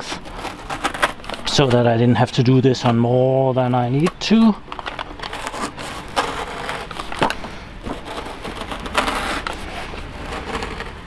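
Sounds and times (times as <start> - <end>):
utility knife slicing foam: 8.0 - 11.0.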